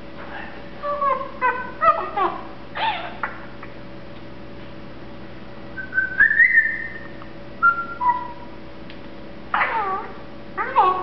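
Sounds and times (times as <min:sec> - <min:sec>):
parrot mumbled chatter: 0:00.8 - 0:03.3, 0:09.5 - 0:11.0
parrot whistling: 0:05.8 - 0:08.5.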